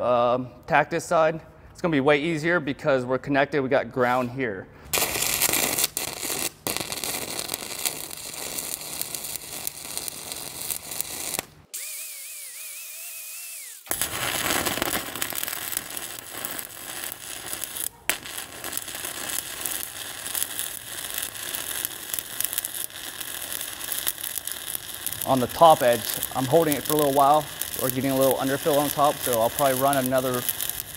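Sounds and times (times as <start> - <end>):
welding arc crackling: 5.0 - 30.9
steady hiss with high tone: 13.9 - 30.9.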